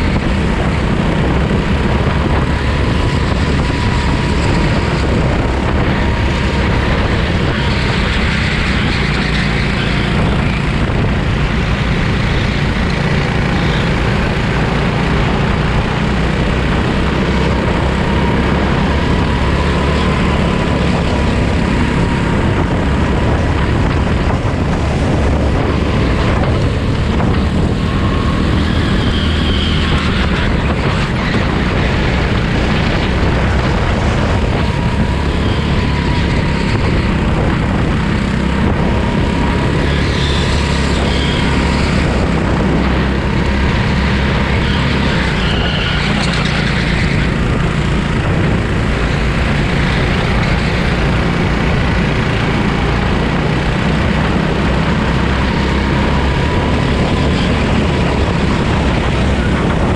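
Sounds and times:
go-kart engine running: 0:00.0 - 0:59.9
high-pitched squeals: 0:38.9 - 0:53.0.

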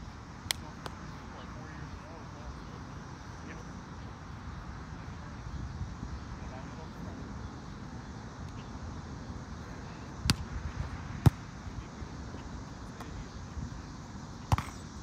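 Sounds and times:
low background noise: 0:00.0 - 0:15.0
volleyball being struck: 0:14.5 - 0:14.8.

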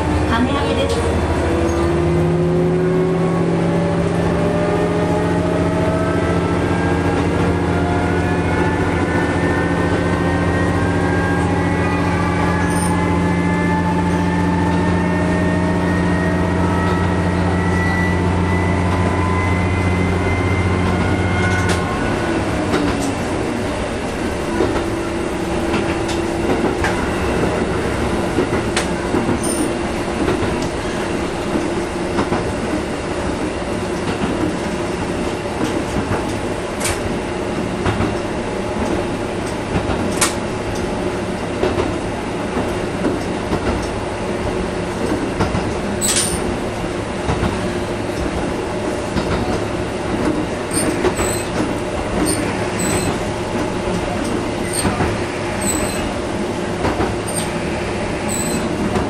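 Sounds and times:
diesel railcar engine: 0:00.0 - 0:59.0
drive whine: 0:03.9 - 0:24.4
wheels clicking over rail joints: 0:49.1 - 0:56.1.

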